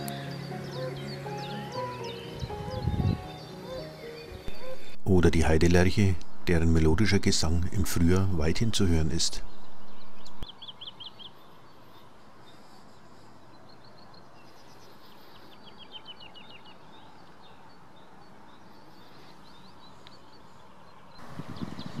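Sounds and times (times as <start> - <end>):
woodlark singing: 0.0 - 11.4
outdoor background hiss: 0.0 - 22.0.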